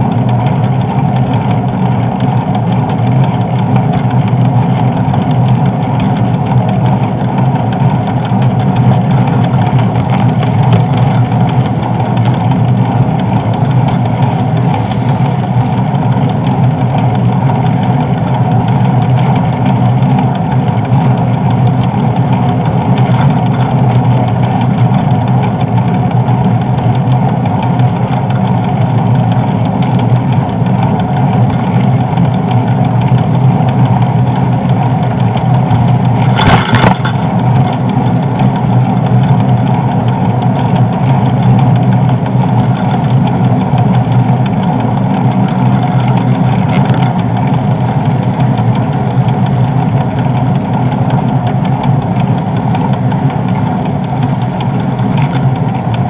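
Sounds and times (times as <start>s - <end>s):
bicycle road vibration: 0.0s - 56.0s
short clatter: 34.8s - 40.7s, 42.2s - 48.8s.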